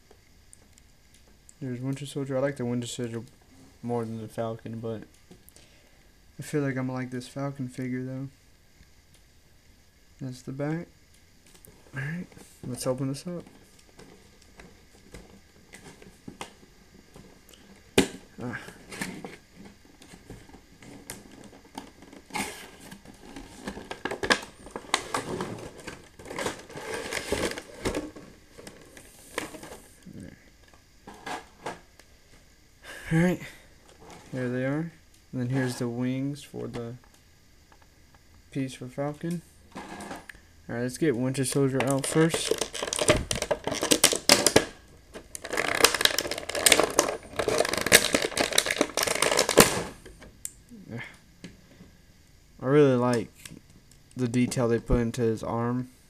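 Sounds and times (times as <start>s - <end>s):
cardboard box and plastic tray rustling: 20.1s - 29.8s, 45.2s - 49.8s
plastic packaging crinkling: 20.8s - 29.8s, 41.5s - 50.0s.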